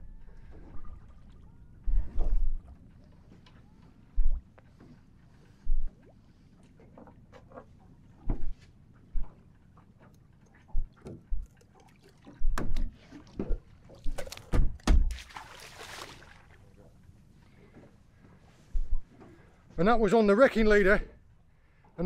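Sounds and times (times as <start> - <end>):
splash in water: 14.0 - 16.6.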